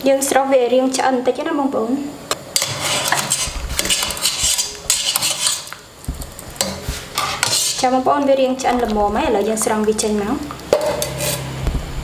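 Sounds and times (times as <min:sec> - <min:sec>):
water swishing in pot: 0:02.6 - 0:11.6.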